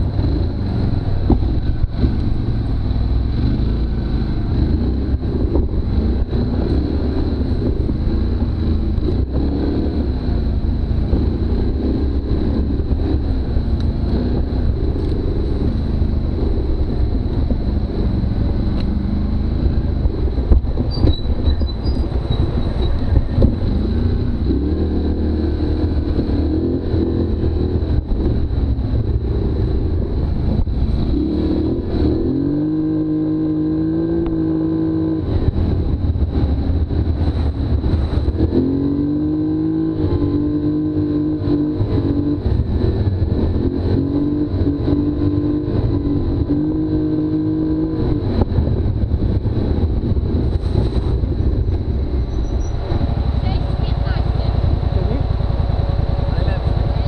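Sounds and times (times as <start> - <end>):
quad engine running hard: 52.9 - 57.0.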